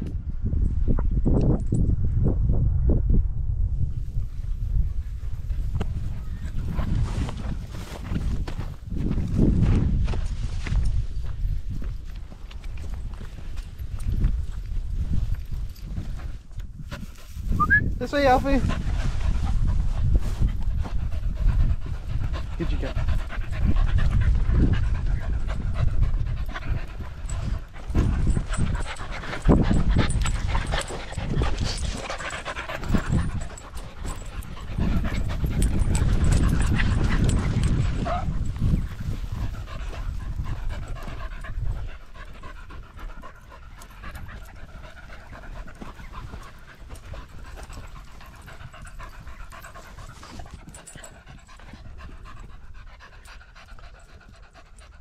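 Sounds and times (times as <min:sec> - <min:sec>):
dog panting: 0:18.1 - 0:55.0.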